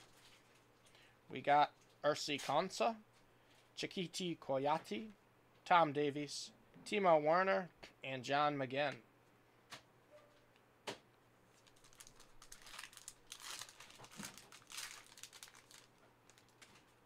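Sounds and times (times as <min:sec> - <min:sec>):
foil pack crinkling: 0:11.5 - 0:17.0.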